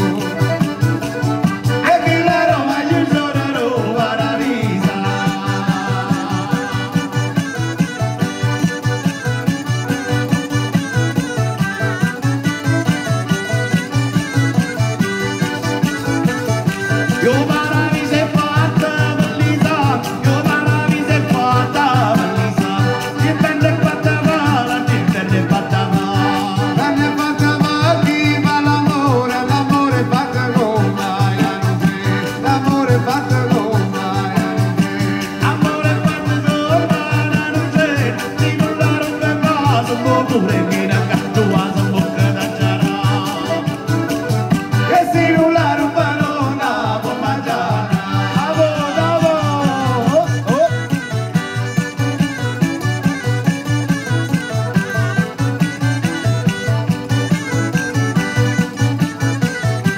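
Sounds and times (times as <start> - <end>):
frame drum beat: 0.0 - 59.7
accordion: 0.0 - 59.9
acoustic guitar: 0.0 - 59.9
person singing: 1.6 - 8.1, 17.0 - 51.2.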